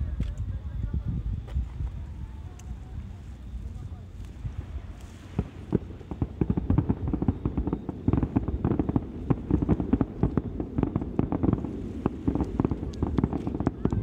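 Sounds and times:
fireworks bursting: 4.2s - 14.0s.

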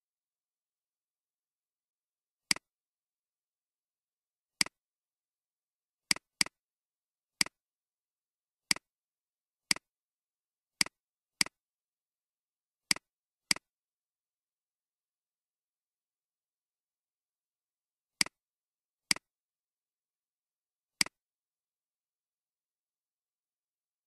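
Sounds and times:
computer mouse clicks: 6.1s - 6.6s.

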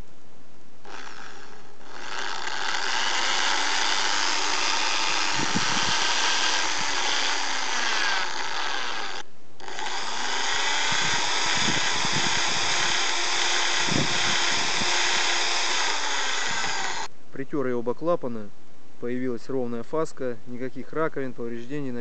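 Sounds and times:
electric drill running: 0.8s - 17.1s.

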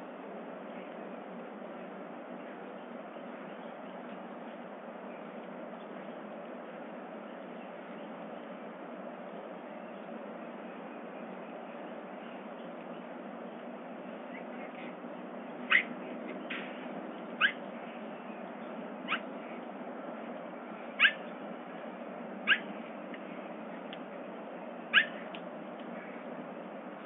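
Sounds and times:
bobcat mewing calls: 21.0s - 21.3s, 22.4s - 22.7s, 24.9s - 25.3s.

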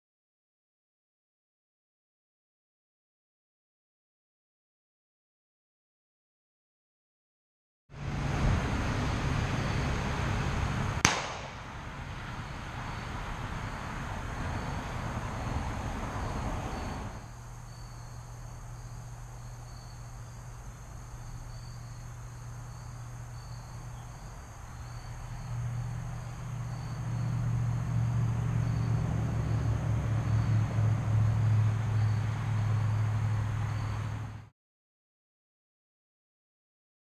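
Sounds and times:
crickets chirping: 11.1s - 34.5s.

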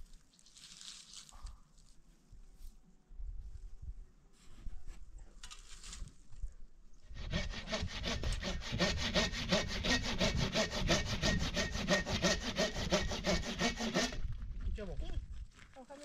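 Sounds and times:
rapid sawing strokes: 7.1s - 14.3s.

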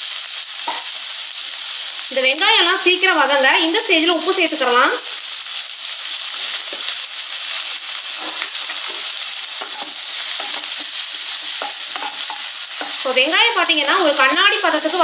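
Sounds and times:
food sizzling in hot oil: 0.0s - 15.0s
spatula scraping pan: 6.5s - 13.3s.

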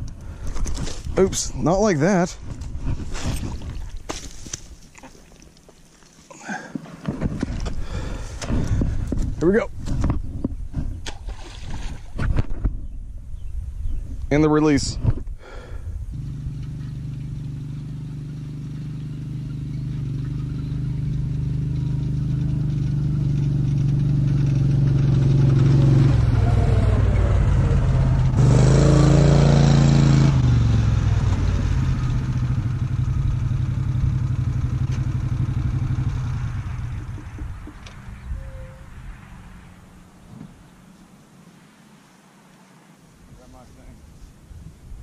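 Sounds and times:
utility vehicle engine running: 16.1s - 38.3s.

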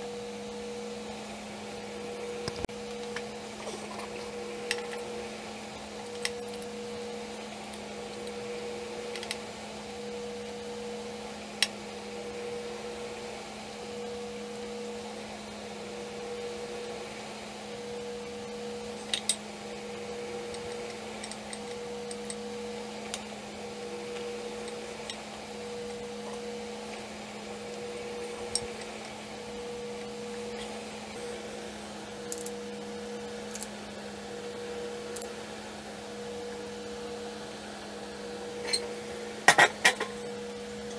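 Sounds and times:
electrical room hum: 0.0s - 40.9s
metal parts clicking and tapping: 32.3s - 32.5s.

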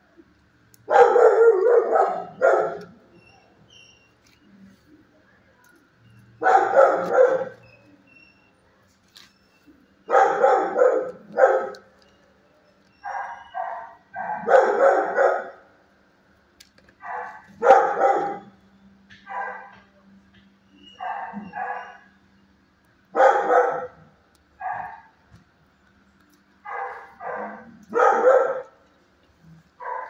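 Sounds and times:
dogs barking: 0.8s - 3.1s, 6.3s - 7.7s, 10.0s - 12.0s, 13.0s - 15.7s, 17.0s - 18.6s, 19.2s - 19.9s, 20.9s - 22.1s, 23.1s - 25.2s, 26.6s - 28.9s, 29.7s - 30.0s.

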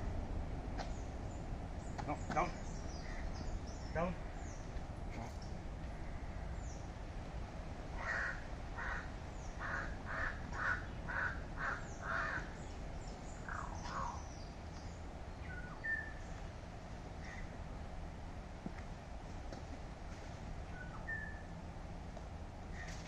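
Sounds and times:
crow cawing: 8.0s - 12.5s.

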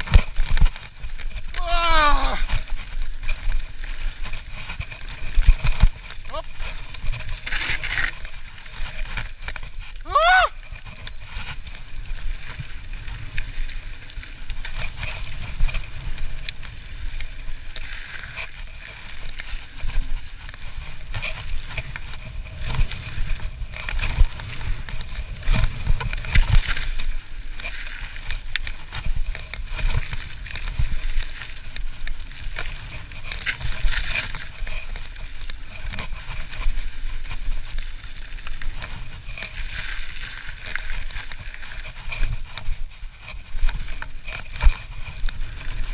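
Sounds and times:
bike rattling over bumps: 0.0s - 45.9s
wind rumble on microphone: 0.0s - 45.9s.

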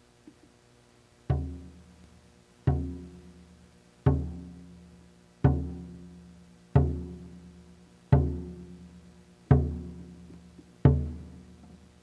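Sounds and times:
large drum beats: 1.3s - 1.8s, 2.7s - 3.2s, 4.1s - 4.6s, 5.4s - 6.1s, 6.8s - 7.4s, 8.1s - 8.8s, 9.5s - 10.3s, 10.9s - 11.4s.

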